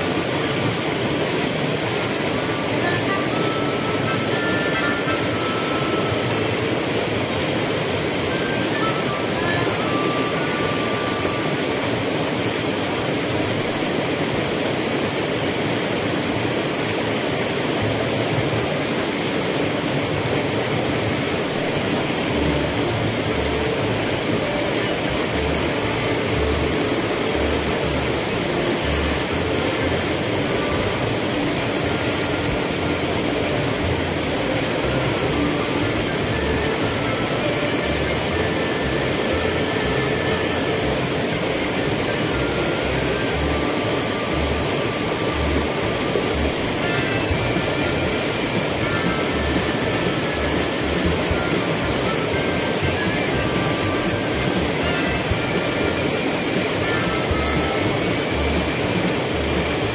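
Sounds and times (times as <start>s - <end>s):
waterfall roaring: 0.0s - 59.9s.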